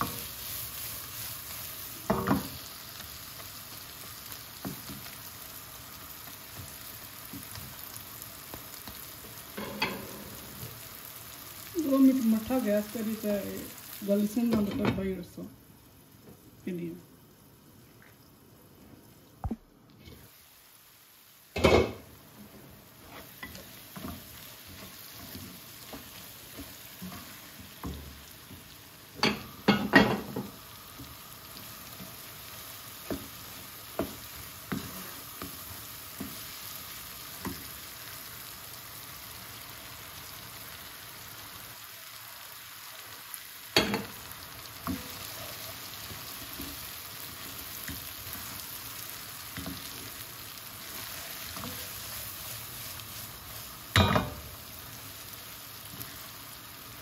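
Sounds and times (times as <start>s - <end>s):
spatula stirring and tapping pan: 0.0s - 5.2s, 22.6s - 38.2s, 43.7s - 54.6s
vegetables sizzling in oil: 0.0s - 57.0s.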